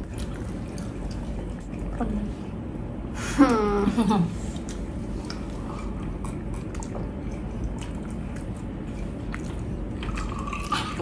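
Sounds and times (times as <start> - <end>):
steady low hum: 0.0 - 11.0
gulping drink: 9.4 - 11.0.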